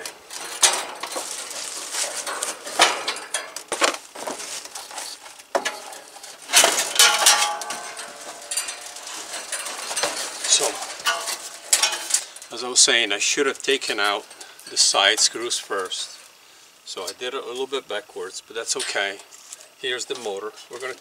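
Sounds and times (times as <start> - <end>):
sheet metal clanking and scraping: 0.0 - 3.9, 5.6 - 12.5.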